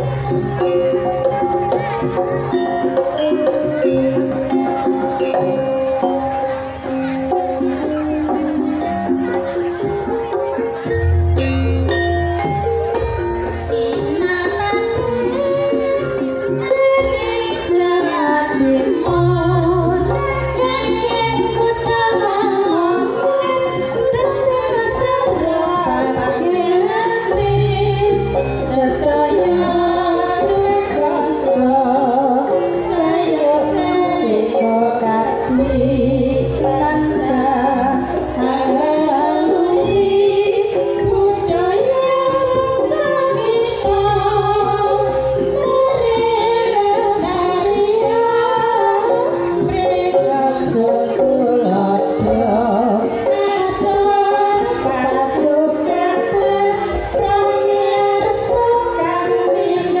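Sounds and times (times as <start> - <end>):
women singing together: 13.7 - 60.0.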